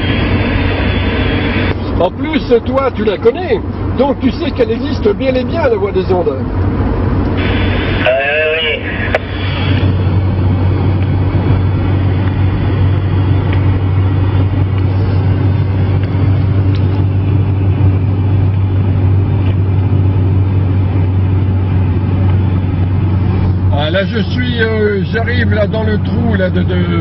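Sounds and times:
road hiss: 0:00.0 - 0:04.0, 0:07.2 - 0:10.6
car engine and tyre drone: 0:00.0 - 0:27.0.

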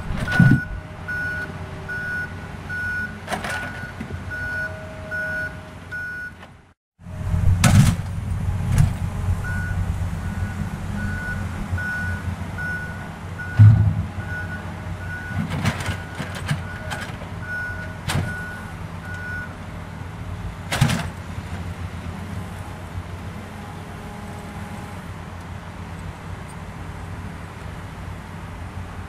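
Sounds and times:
vehicle reversing alarm beeping: 0:00.3 - 0:06.4, 0:09.4 - 0:19.6
thump: 0:13.6 - 0:14.2.

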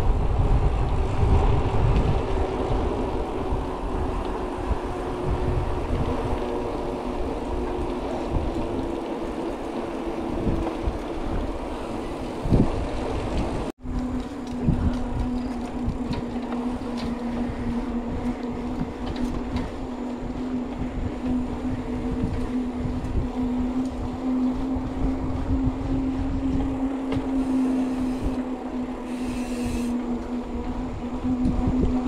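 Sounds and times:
mountain bike humming: 0:00.0 - 0:32.0
wind buffeting microphone: 0:00.0 - 0:32.0.

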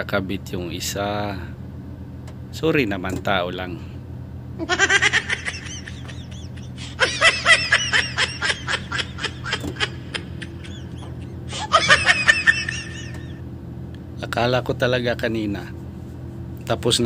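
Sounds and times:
low engine hum: 0:00.0 - 0:17.0
high-pitched laughter: 0:04.6 - 0:13.4.

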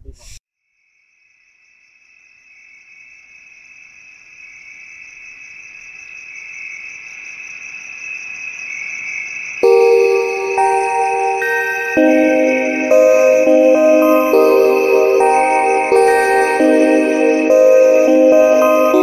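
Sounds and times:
high-pitched insect trill: 0:00.7 - 0:19.0
music with mallet tones: 0:09.6 - 0:19.0.

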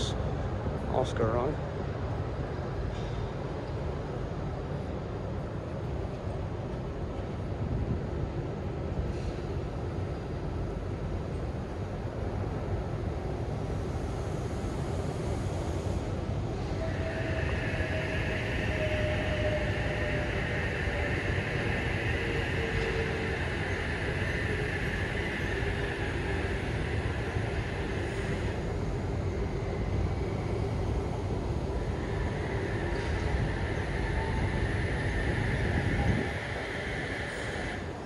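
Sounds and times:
electric train rumbling: 0:00.0 - 0:38.0
high steady hiss: 0:13.9 - 0:38.0.

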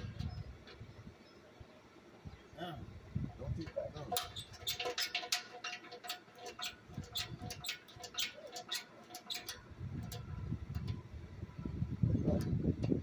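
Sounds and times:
hand tools clicking on metal: 0:04.0 - 0:11.0.

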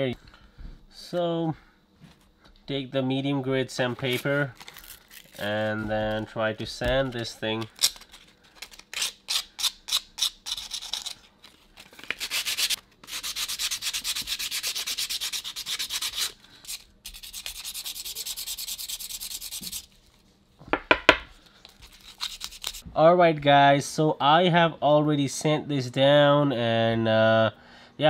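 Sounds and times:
sandpaper rubbing: 0:12.0 - 0:20.0, 0:21.8 - 0:22.8.

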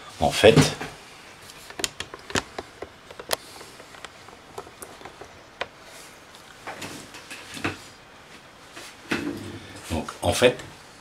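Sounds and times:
rustling: 0:01.0 - 0:10.0
camera handling clicks and knocks: 0:01.6 - 0:05.7.

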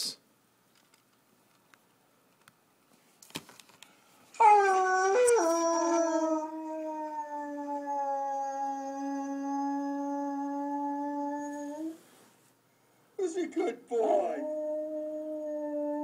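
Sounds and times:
dog howling: 0:04.4 - 0:12.0, 0:14.0 - 0:16.0.

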